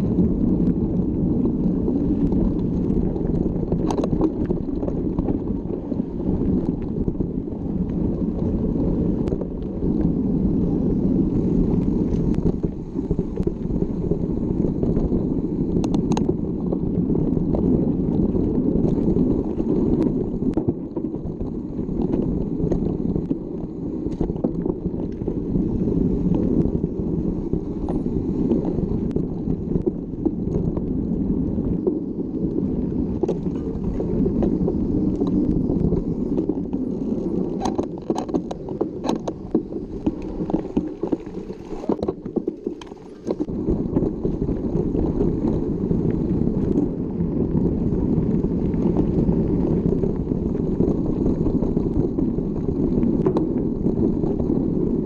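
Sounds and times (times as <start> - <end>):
bike ride rumble: 0.0 - 55.0
wind on microphone: 0.0 - 55.0
sharp clicks and rattles: 36.4 - 43.5.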